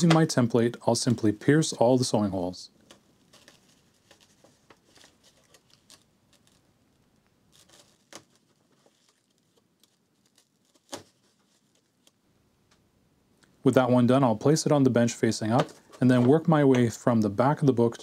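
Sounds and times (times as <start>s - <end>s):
paper rustling: 2.8s - 6.7s, 7.5s - 12.2s.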